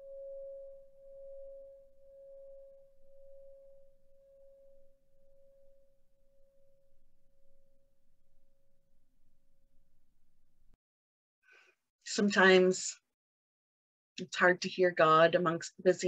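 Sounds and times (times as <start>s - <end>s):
meditation bell ringing: 0.0s - 7.9s.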